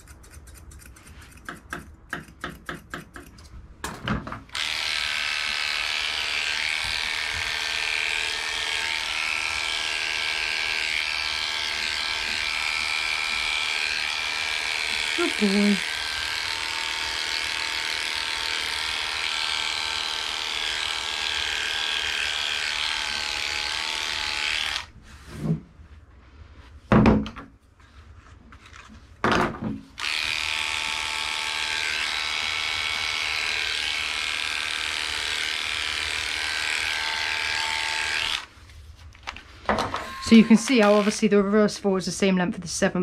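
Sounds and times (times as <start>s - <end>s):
electric dog clipper humming: 4.5s - 24.9s, 30.0s - 38.5s, 39.9s - 41.3s.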